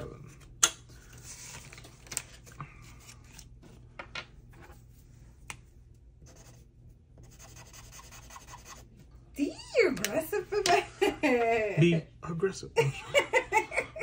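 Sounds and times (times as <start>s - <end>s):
marker scratching on paper: 6.2s - 8.9s.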